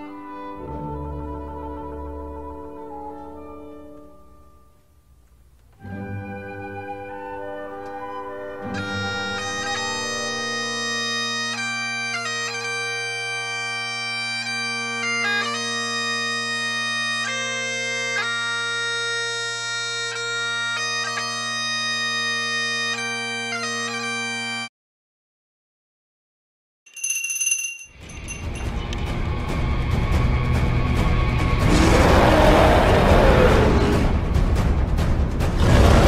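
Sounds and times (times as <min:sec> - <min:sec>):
bagpipes playing melody over drones: 0:08.6 - 0:24.7.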